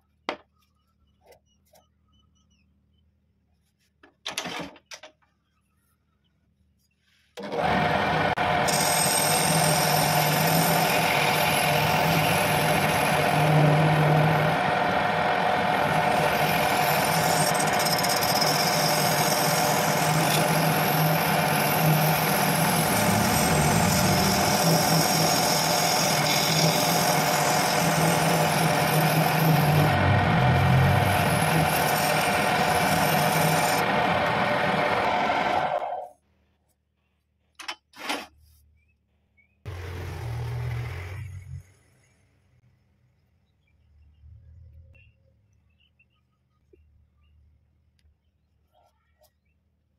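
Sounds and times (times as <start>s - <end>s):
lathe motor humming: 7.4s - 36.0s
chisel scraping spinning wood: 8.6s - 36.0s.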